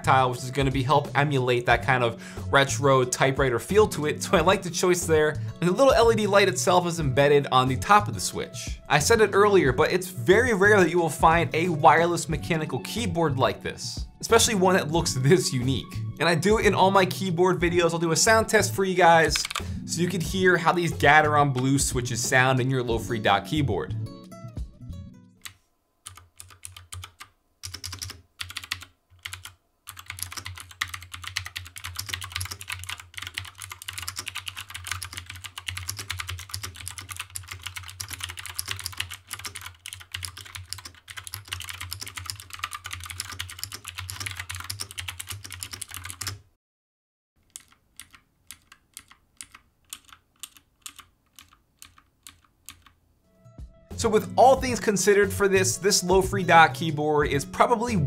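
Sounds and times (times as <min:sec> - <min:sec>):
mechanical keyboard typing: 0:19.2 - 0:19.7, 0:25.4 - 0:46.4, 0:47.4 - 0:53.0.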